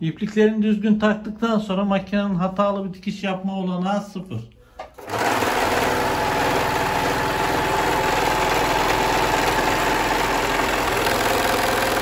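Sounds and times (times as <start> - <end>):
overlock sewing machine running: 5.0 - 12.0.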